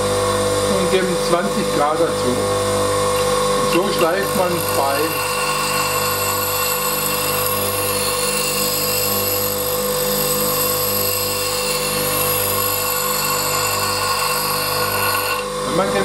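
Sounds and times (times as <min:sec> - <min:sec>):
bench grinder motor running: 0:00.0 - 0:16.0
hiss of blade grinding: 0:03.2 - 0:15.5.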